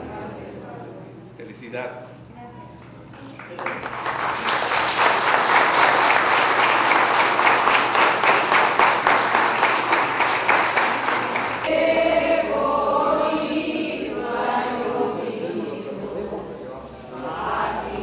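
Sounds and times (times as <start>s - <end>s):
choir singing: 0.0s - 0.8s, 10.7s - 18.0s
congregation applauding: 3.1s - 11.7s.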